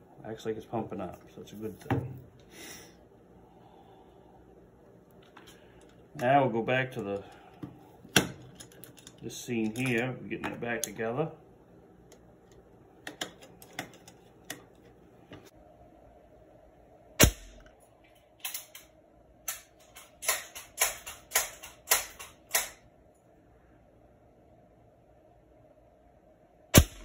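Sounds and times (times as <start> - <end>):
air rifle shot: 17.2 - 17.6, 26.8 - 27.0
sharp clicks: 19.5 - 22.8.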